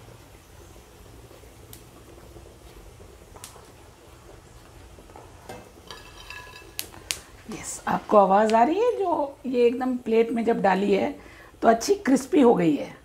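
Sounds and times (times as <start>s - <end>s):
wire skimmer clinking on metal pan: 5.8s - 6.9s.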